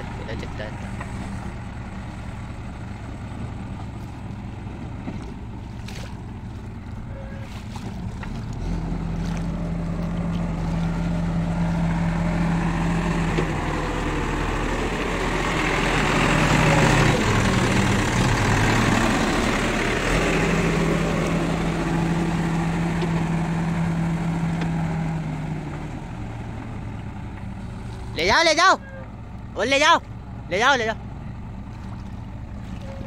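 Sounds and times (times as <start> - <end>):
diesel engine running: 0.0 - 33.0
rushing water: 5.1 - 25.8.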